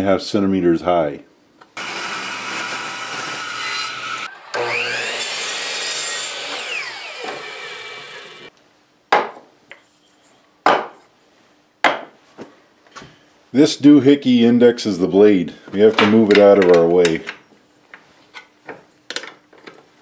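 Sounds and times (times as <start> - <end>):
miter saw whining and cutting: 1.8 - 8.5
table saw cutting wood: 1.8 - 8.5.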